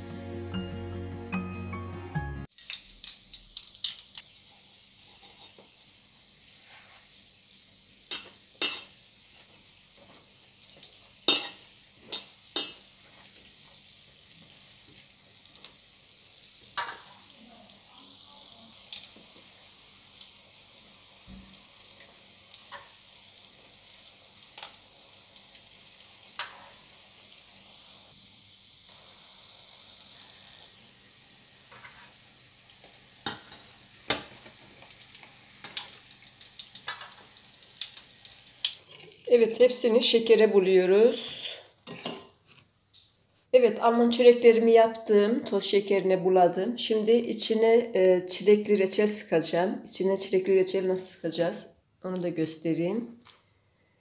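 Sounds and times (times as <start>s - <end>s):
oil sizzling with pops: 2.4s - 40.4s, 41.6s - 43.3s.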